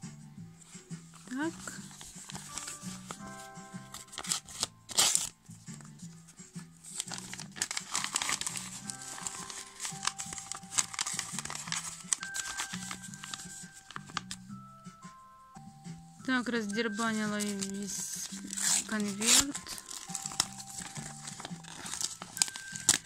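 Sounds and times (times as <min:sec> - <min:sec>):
background music with bass: 0:00.0 - 0:02.2
paper envelope tearing: 0:01.1 - 0:05.4, 0:06.8 - 0:14.4, 0:16.9 - 0:23.0.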